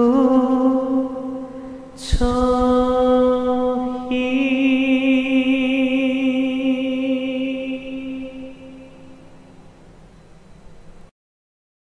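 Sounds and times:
sustained droning chord: 0.0s - 9.4s.

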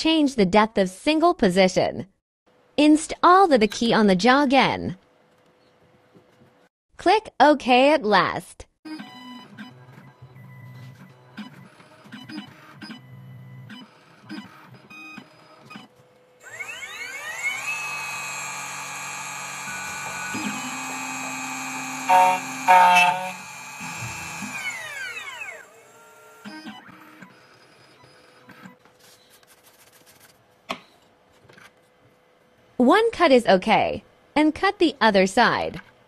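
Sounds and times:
machine clicks and motor whirs: 11.0s - 28.8s
spindle motor whine: 16.4s - 26.9s.

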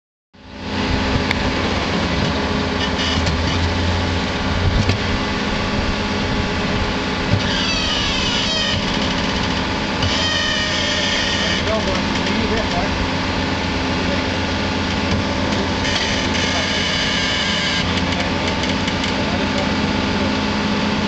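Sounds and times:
excavator diesel engine running: 0.4s - 21.0s
high-pitched squeal: 2.8s - 3.8s, 7.4s - 12.3s, 15.7s - 18.1s.

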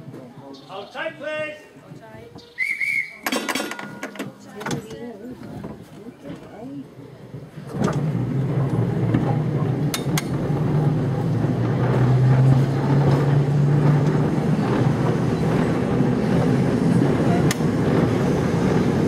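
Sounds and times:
tram humming and rumbling: 0.0s - 19.0s.

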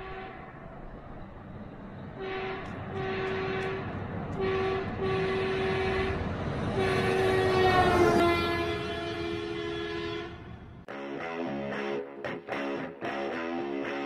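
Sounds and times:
truck air horn blasts: 0.0s - 0.5s, 2.2s - 10.6s.

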